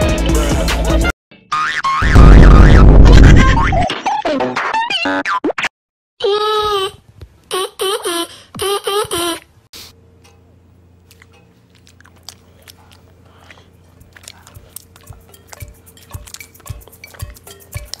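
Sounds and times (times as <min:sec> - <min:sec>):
low steady hum: 0:10.0 - 0:18.0
crunchy nibbling bites and clicks: 0:11.0 - 0:18.0.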